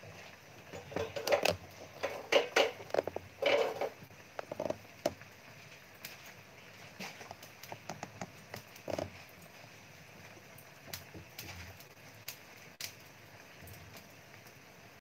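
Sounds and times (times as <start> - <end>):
charcoal knocking in wire basket: 0.7 - 5.2.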